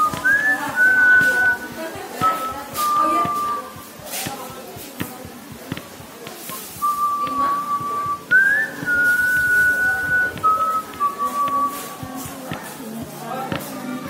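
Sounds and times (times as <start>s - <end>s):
person whistling a tune: 0.0s - 4.5s, 6.5s - 12.4s.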